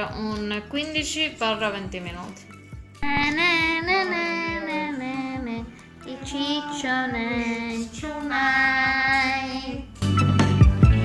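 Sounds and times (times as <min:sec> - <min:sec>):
steady music beat: 0:03.0 - 0:04.7
high singing voice: 0:03.0 - 0:10.0.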